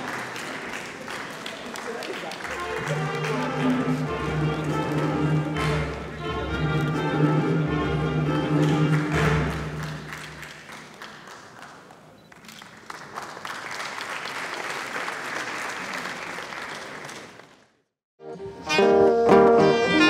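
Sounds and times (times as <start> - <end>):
audience applauding: 0.0 - 7.0, 8.4 - 17.8
background music: 2.5 - 10.3, 18.2 - 20.0.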